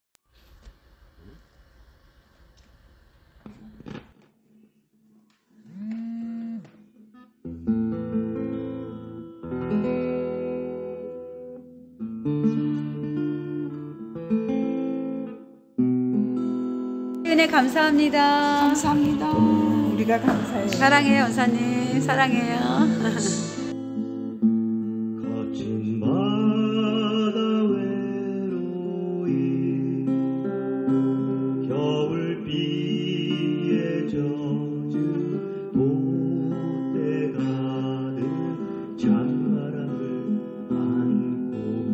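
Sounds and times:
acoustic guitar strummed chords: 0:05.6 - 0:41.9
gliding guitar note: 0:17.2 - 0:24.3.

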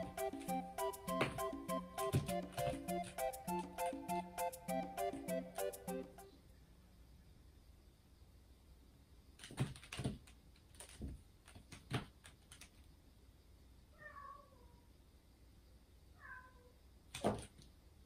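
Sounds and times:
kitten meowing: 0:14.0 - 0:14.7, 0:16.2 - 0:16.7.

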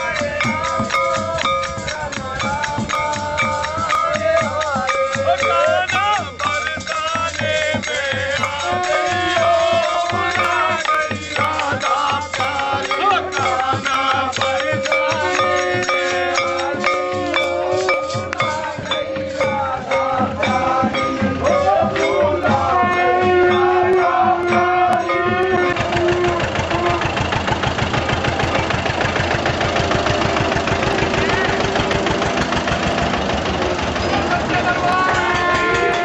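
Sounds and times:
devotional music: 0:00.0 - 0:28.7
engine running: 0:00.0 - 0:36.0.

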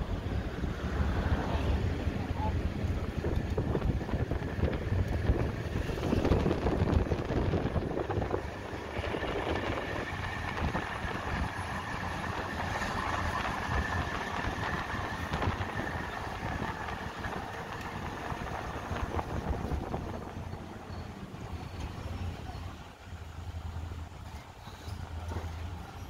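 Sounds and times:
motor vehicle engine rumble: 0:00.0 - 0:26.0.

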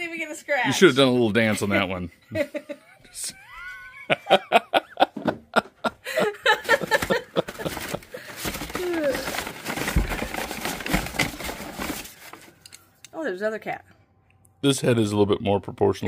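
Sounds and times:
people laughing: 0:01.2 - 0:08.4
packing material rustling: 0:06.4 - 0:12.8.

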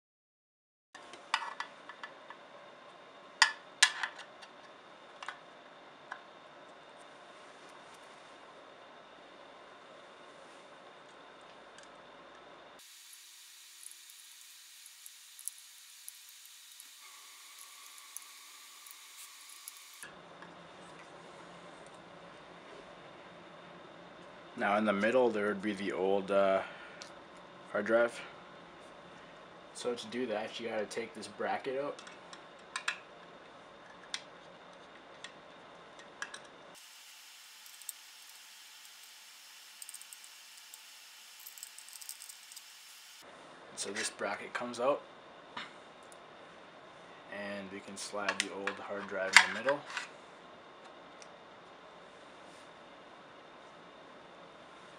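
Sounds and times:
steady hiss: 0:12.8 - 0:20.1, 0:36.8 - 0:43.2
small metal clicks: 0:39.7 - 0:42.7.

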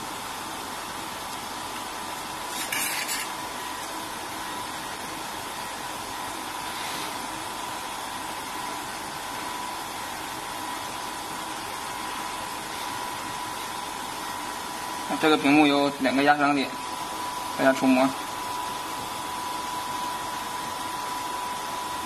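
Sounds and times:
faint steady whine: 0:00.0 - 0:22.0.

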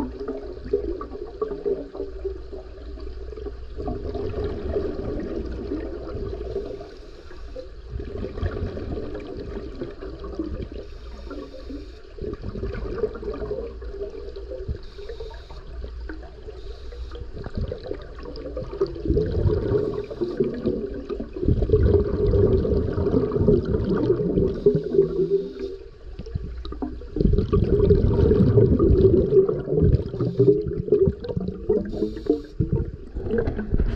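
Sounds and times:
exhaled bubbles rushing: 0:00.0 - 0:06.9, 0:07.6 - 0:33.9
diver breathing through regulator: 0:14.8 - 0:15.7, 0:24.5 - 0:25.9, 0:31.9 - 0:32.6.

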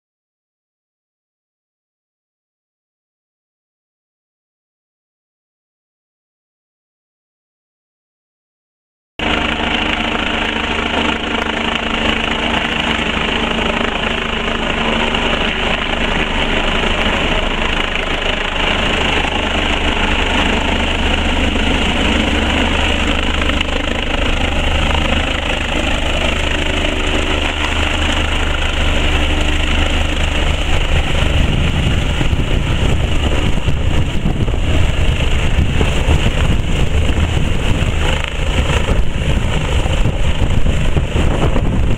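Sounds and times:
helicopter turbine whine and rotor: 0:09.2 - 0:41.9.

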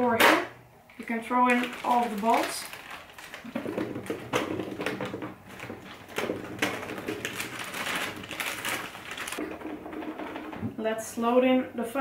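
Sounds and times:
plastic bag rustling: 0:00.9 - 0:09.5
foam balls rattling into plastic hopper: 0:01.0 - 0:10.8.

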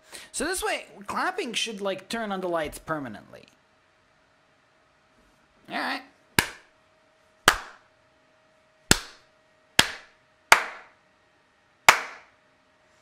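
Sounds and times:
hand claps: 0:06.4 - 0:06.7, 0:07.5 - 0:07.9, 0:08.9 - 0:11.0, 0:11.9 - 0:12.3.

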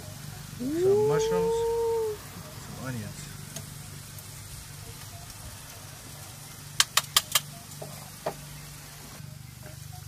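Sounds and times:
low engine-like hum: 0:00.0 - 0:06.8
metal kitchen tongs clicking: 0:06.8 - 0:07.5.

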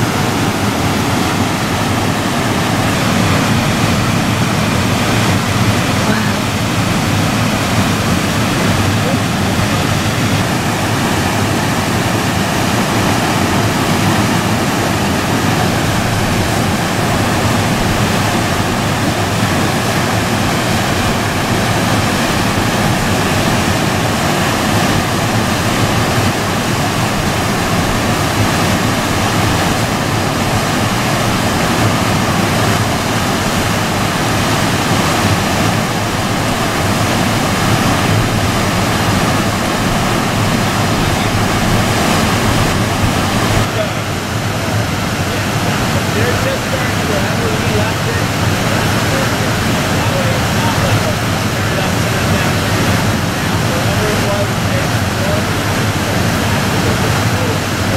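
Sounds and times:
river rapids rushing: 0:00.0 - 0:57.9.

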